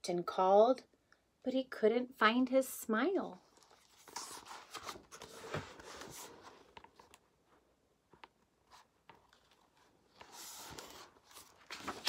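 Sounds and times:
paper rustling and rubbing: 3.6 - 7.2, 8.7 - 12.0.

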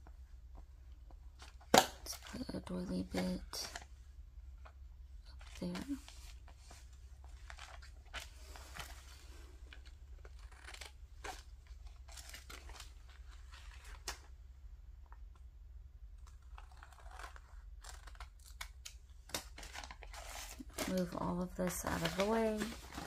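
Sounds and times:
paper rustling: 5.3 - 14.3, 16.2 - 23.0
scissors snipping paper: 16.5 - 19.0.

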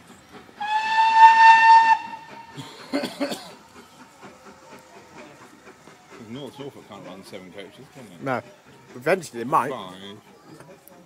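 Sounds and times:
steam locomotive whistle: 0.6 - 2.6.

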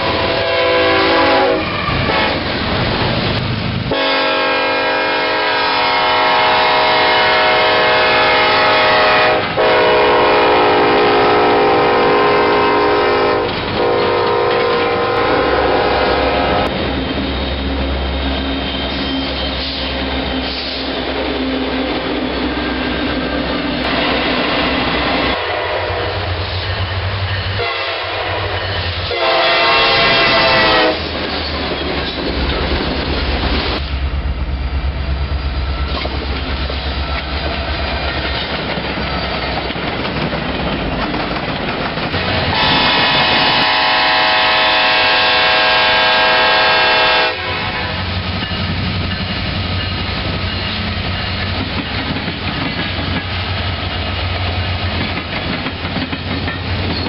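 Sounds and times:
locomotive air horn: 0.0 - 2.4, 3.9 - 16.7, 25.0 - 26.4, 27.6 - 31.2, 42.3 - 48.1
diesel freight trains rumbling past: 0.0 - 57.0
rail noise: 0.0 - 57.0.

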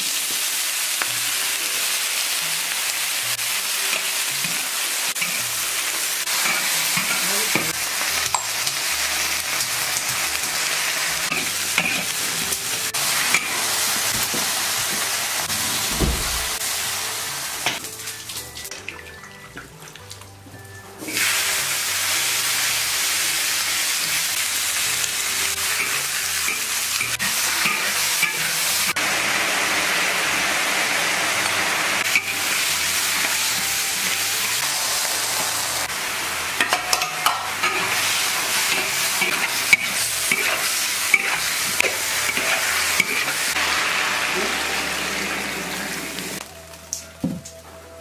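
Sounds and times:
potato slices sizzling in oil: 0.0 - 15.9, 21.0 - 46.9
metal spatula clacking and scraping: 36.6 - 43.4.

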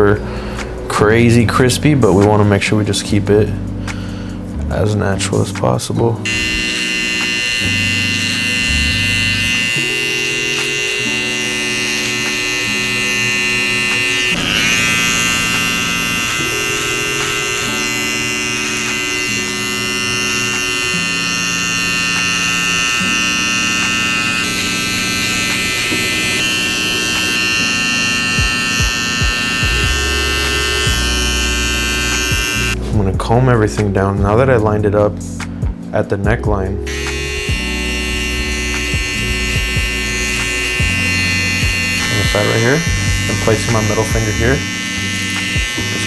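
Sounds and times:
background music: 0.0 - 46.0
hair trimmer buzzing: 6.2 - 32.9, 36.8 - 46.0.

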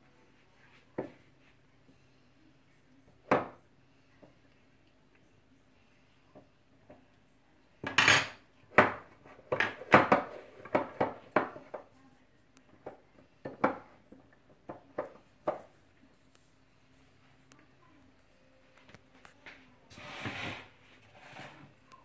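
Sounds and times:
spatula scraping a metal pot: 19.9 - 21.7.

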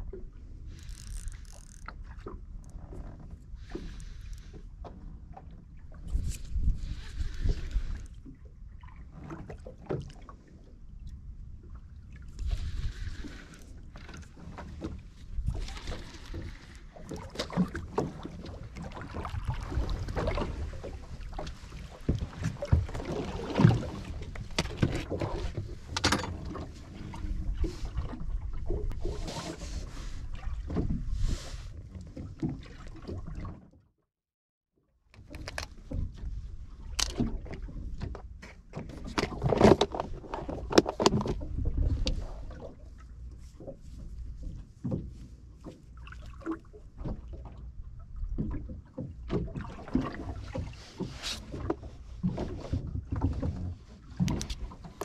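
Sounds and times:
wind and water rumble: 0.0 - 34.0, 35.0 - 55.0
knocks and clicks of fishing tackle: 24.3 - 25.3, 25.9 - 26.6, 35.2 - 36.3, 37.0 - 41.4, 54.2 - 55.0.

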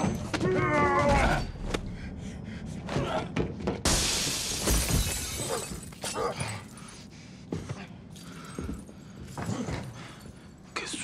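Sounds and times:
glass shattering: 3.9 - 6.4.

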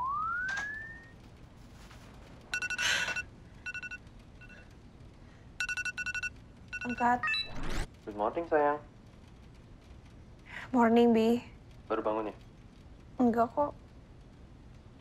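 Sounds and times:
bedsheets rustling: 1.2 - 2.5
video call ringtone beeps: 2.5 - 4.6, 5.6 - 7.6.

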